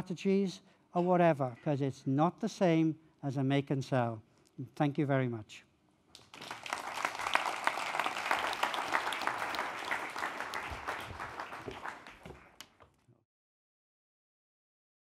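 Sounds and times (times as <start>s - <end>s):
audience applauding: 6.2s - 12.8s.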